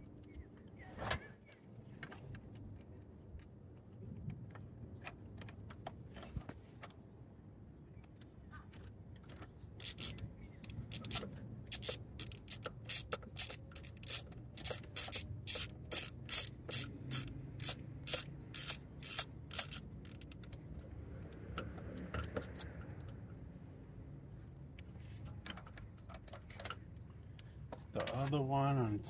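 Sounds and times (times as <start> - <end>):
hand ratchet clicking: 9.8 - 23.2
faint handling noise: 20.0 - 29.0.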